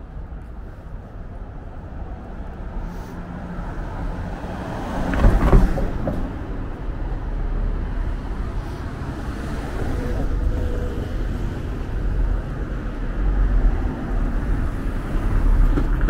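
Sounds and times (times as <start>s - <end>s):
low traffic rumble: 0.0s - 16.0s
vehicle passing by: 2.7s - 5.8s.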